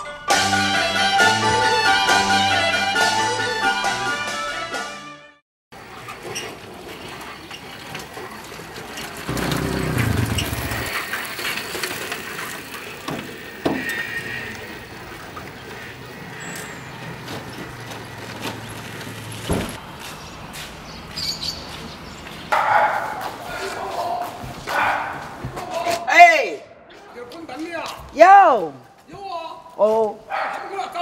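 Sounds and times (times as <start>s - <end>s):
street traffic: 5.7s - 26.0s.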